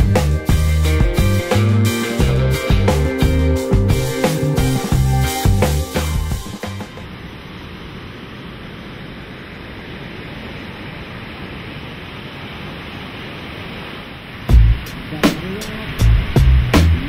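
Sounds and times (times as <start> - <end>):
background music: 0.0 - 7.0
ocean surf breaking: 0.8 - 17.0.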